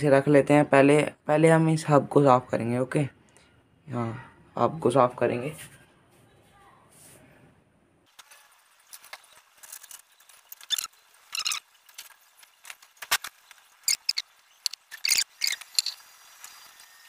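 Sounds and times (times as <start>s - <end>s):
cloth rubbing bike wheel: 8.3s - 17.0s.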